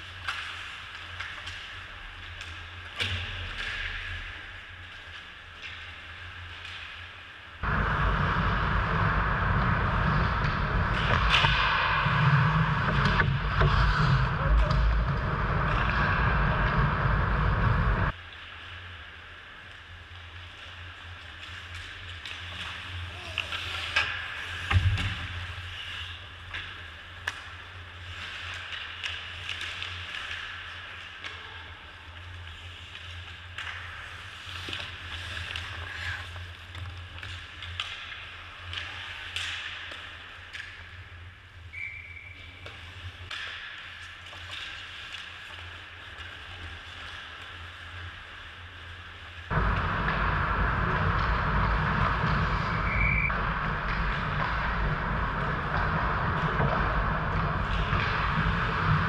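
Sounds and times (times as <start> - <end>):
low rink hum: 0.0 - 59.0
loud rushing noise: 7.6 - 18.1, 49.5 - 59.0
skate blades scraping ice: 19.8 - 59.0
stick and puck clicks: 32.3 - 45.6.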